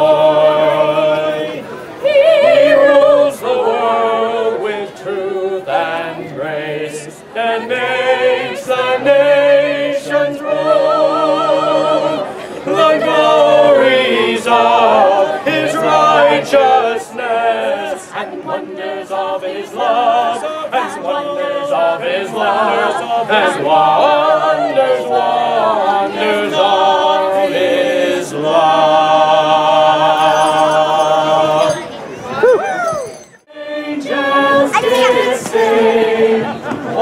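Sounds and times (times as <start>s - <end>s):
choir singing: 0.0s - 31.8s, 33.4s - 37.0s.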